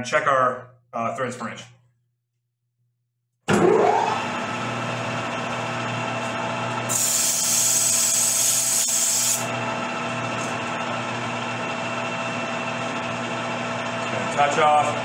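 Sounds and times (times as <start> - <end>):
lathe motor hum: 9.4 - 15.0.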